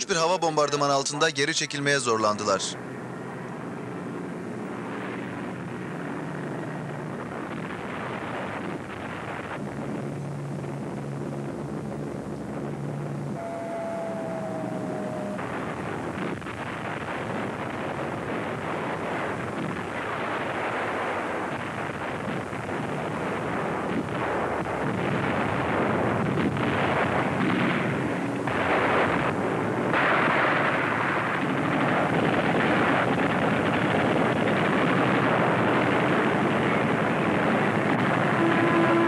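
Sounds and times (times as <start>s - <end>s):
explosions: 13.4s - 38.4s.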